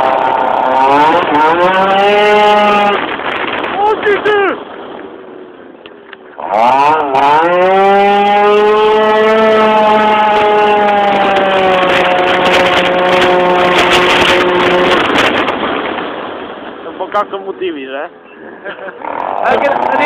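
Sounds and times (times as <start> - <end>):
scooter engine revving: 0.0 - 3.9, 6.4 - 15.9, 19.0 - 20.0.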